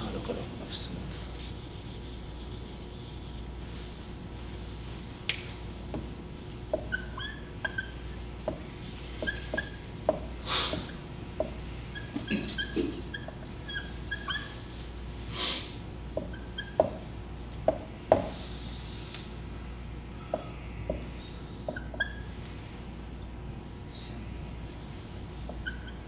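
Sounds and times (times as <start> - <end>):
marker squeaking on whiteboard: 6.7 - 14.8, 16.2 - 17.1, 20.3 - 22.4, 25.4 - 26.0.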